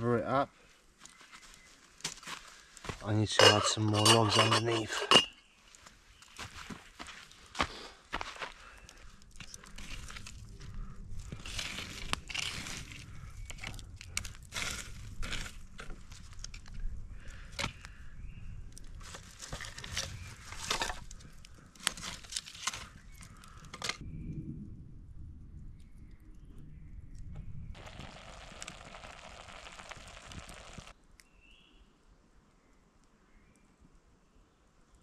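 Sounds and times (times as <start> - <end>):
sticks and wood snapping: 11.3 - 18.0, 18.7 - 24.0.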